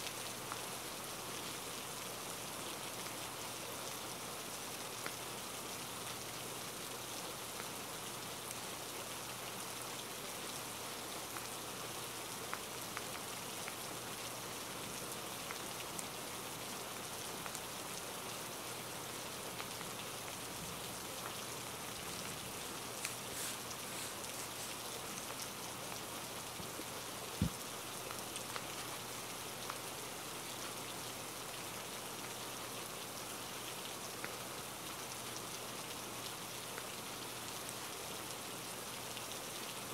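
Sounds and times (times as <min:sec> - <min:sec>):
steady rain hiss: 0:00.0 - 0:39.9
raindrop ticks: 0:26.6 - 0:29.0.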